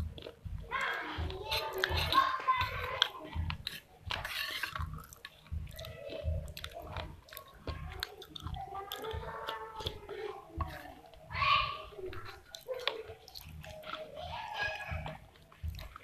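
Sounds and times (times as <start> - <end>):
moist mouth clicks: 0.0 - 11.2
person chewing clay paste: 0.0 - 16.0.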